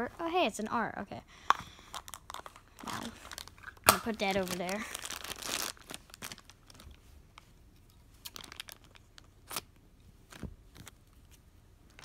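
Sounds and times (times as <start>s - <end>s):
plastic bag crinkling: 1.9s - 7.0s, 8.2s - 9.6s.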